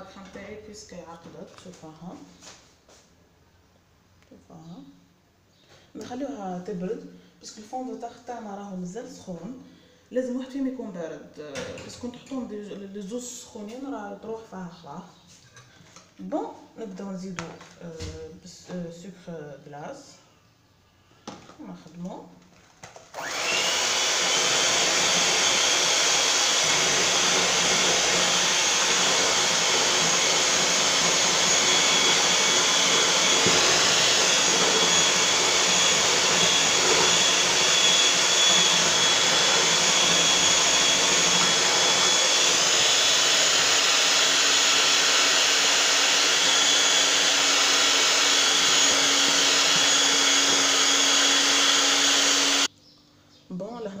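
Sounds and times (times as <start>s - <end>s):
electric mixer whining: 23.1s - 52.7s.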